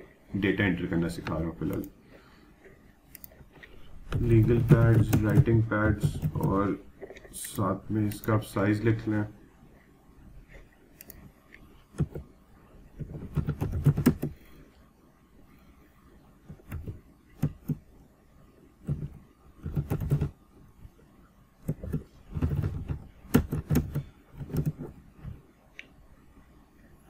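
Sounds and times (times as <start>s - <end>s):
typing on computer keyboard: 4.1s - 6.7s, 13.0s - 14.4s, 16.5s - 17.8s, 18.9s - 20.4s, 21.6s - 24.9s.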